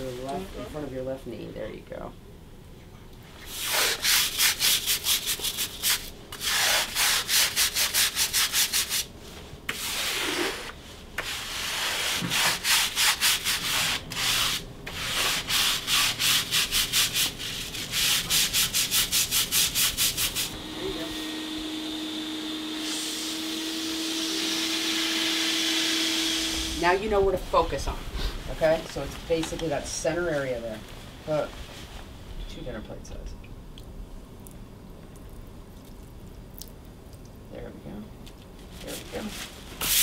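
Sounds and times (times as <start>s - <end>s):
brush scrubbing wet concrete: 3.5s - 9.0s, 9.7s - 20.5s
wet vacuum humming: 20.1s - 31.5s.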